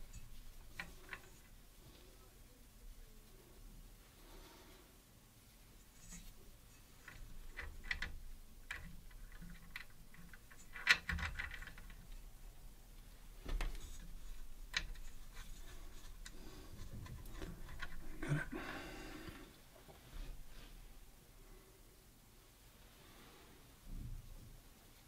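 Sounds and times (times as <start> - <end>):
metal hardware clicks and taps: 0.1 - 1.5, 7.0 - 12.3, 13.4 - 18.4.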